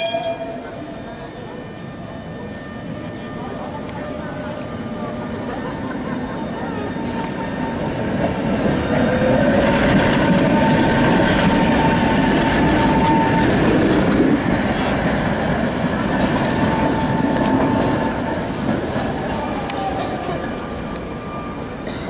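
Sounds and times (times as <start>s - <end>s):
thin high-pitched tone: 0.0s - 5.3s
tram wheels rumbling over rails: 0.0s - 22.0s.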